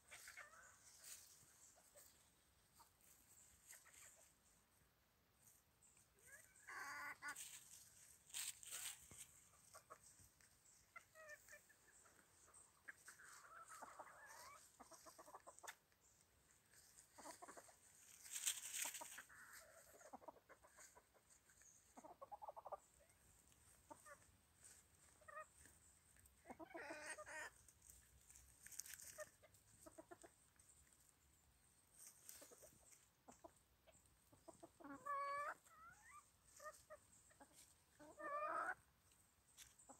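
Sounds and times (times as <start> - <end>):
chickens clucking: 0.0 - 39.9
dry leaves rustling: 6.9 - 9.9, 16.7 - 19.9, 27.0 - 30.1.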